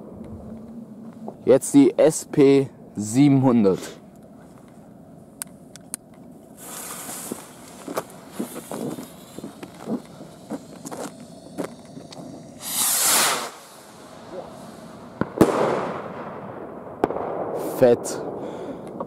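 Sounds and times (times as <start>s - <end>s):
loud rushing hiss: 6.6s - 16.1s
firework rocket hissing: 6.6s - 16.3s.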